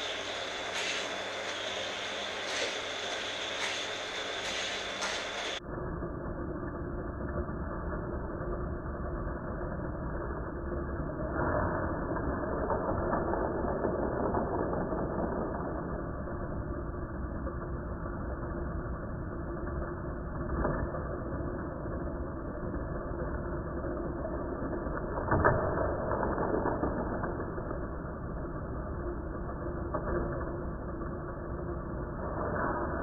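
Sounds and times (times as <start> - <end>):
toy cars clattering on track: 0.0 - 5.6
track boosters whirring: 0.0 - 5.6.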